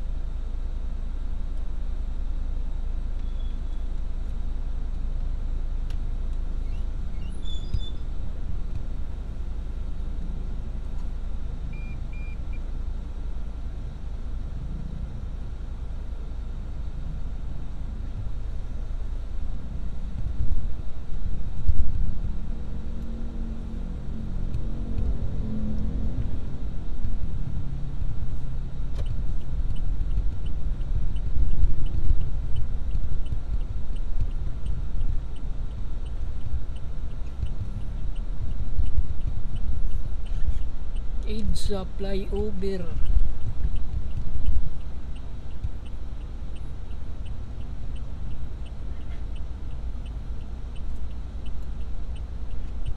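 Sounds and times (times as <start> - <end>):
car engine rumble and road noise: 0.0 - 52.9
short electronic beeps: 11.8 - 12.6
light regular ticking: 16.7 - 52.9.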